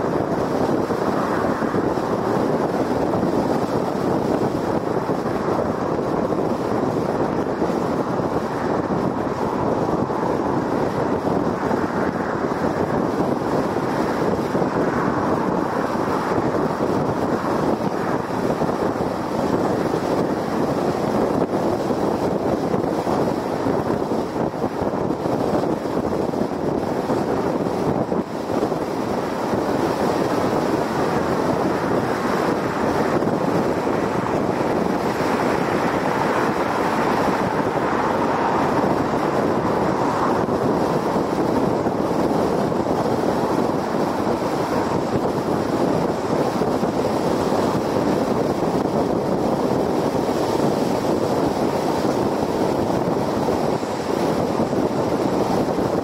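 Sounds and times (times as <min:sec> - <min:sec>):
car tyre and road noise: 0:00.0 - 0:56.0
wind buffeting microphone: 0:00.0 - 0:56.0.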